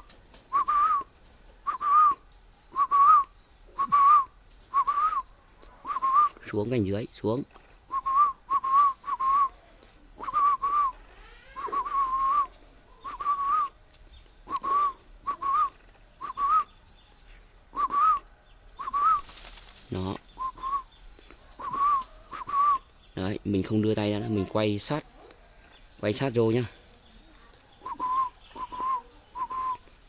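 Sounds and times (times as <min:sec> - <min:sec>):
short whistled notes: 0:27.8 - 0:29.8.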